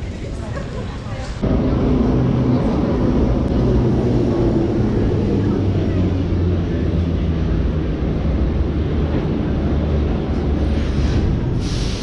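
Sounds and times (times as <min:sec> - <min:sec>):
metro train rumbling: 0:00.0 - 0:12.0
hiss: 0:10.9 - 0:12.0.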